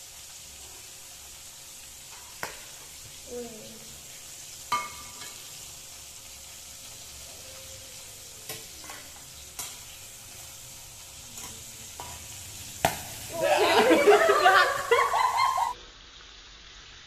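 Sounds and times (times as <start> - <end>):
oil sizzling in a wok: 0.0 - 17.0
metal spatulas clanking on pan: 4.7 - 5.5, 8.5 - 10.0, 11.3 - 13.1.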